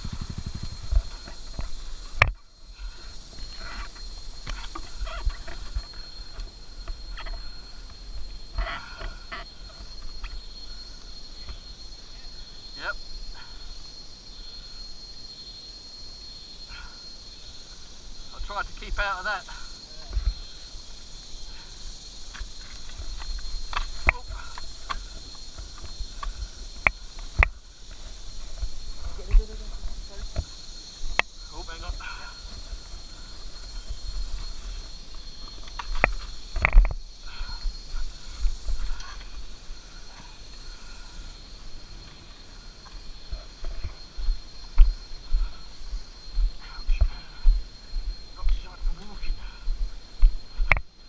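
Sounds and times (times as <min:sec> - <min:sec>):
leaves rustling: 0:17.2 - 0:46.4
footsteps on loose stones: 0:22.2 - 0:31.4, 0:32.0 - 0:37.1.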